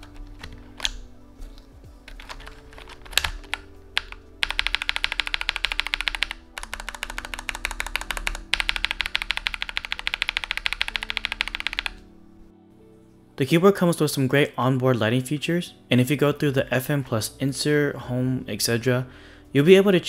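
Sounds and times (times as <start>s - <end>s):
soft background music: 0.0s - 20.0s
mechanical keyboard keystrokes: 2.1s - 12.0s.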